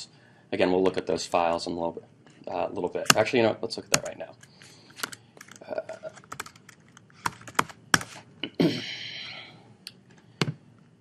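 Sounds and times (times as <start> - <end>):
laptop keyboard typing: 3.9 - 8.2.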